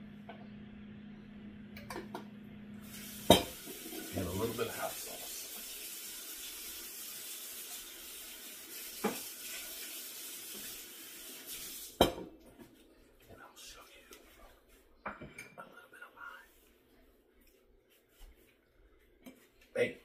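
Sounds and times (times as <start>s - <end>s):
tap water running into sink: 2.8s - 12.2s
dishes clinking against sink: 3.2s - 4.1s, 9.0s - 9.3s, 12.0s - 12.4s, 15.0s - 15.6s.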